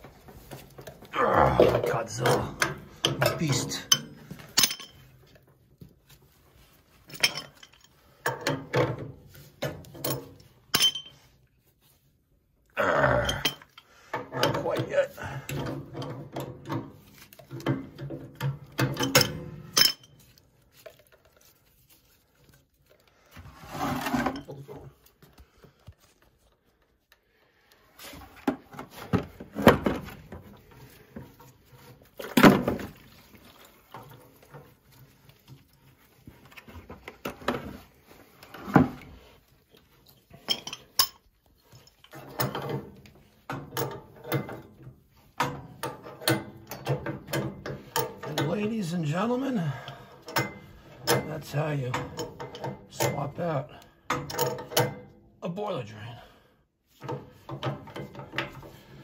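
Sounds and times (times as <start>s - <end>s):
wrench and metal fittings clinking: 2.0s - 5.2s, 7.0s - 8.6s, 9.8s - 11.3s, 13.3s - 21.6s, 40.2s - 44.7s, 54.1s - 55.1s.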